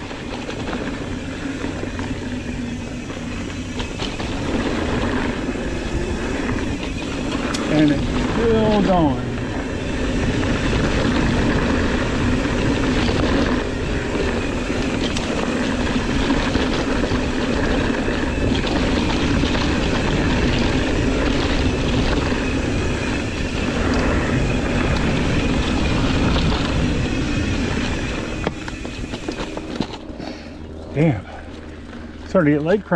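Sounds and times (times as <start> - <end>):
wind noise: 0.0 - 32.2
bike rattles and clicks: 0.0 - 32.9
knobby tyre rumble on dirt: 0.0 - 32.9.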